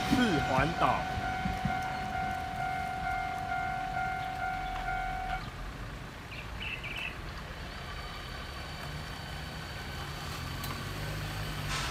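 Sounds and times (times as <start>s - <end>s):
level crossing warning bell: 0.0s - 5.4s
vehicle engine idling: 0.0s - 10.6s
bird chirps: 6.3s - 7.2s.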